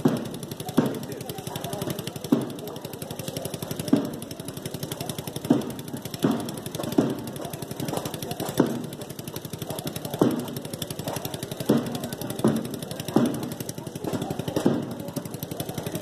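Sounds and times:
deep drum strikes: 0.0 - 9.4
fast drum rattle: 0.0 - 16.0.

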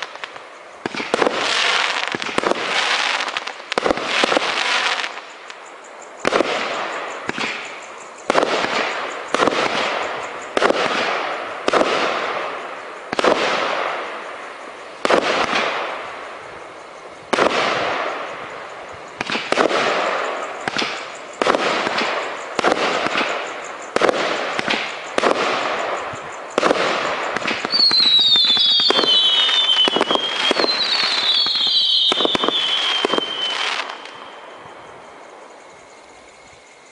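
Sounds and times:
firework bangs with crackle: 0.0 - 5.6, 6.2 - 34.8
falling firework whistles: 0.0 - 16.4, 17.2 - 35.1.

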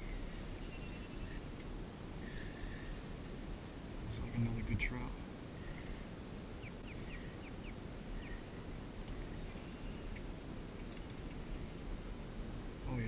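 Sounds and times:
bird calling: 0.0 - 1.6, 5.6 - 11.7
low wind on microphone: 0.0 - 13.0.

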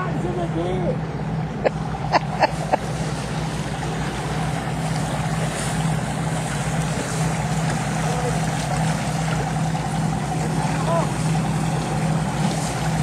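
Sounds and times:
boat engine humming: 0.0 - 13.0
water washing along hull: 0.0 - 13.0.

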